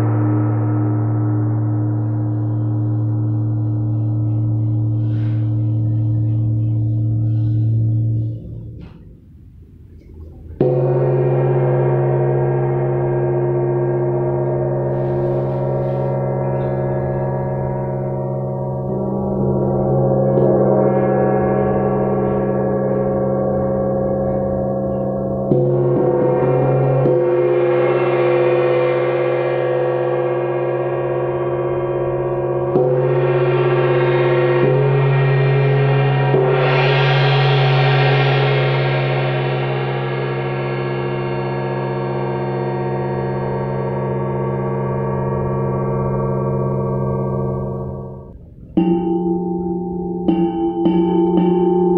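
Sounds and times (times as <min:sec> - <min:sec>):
gong struck with mallet: 0:10.5 - 0:51.9.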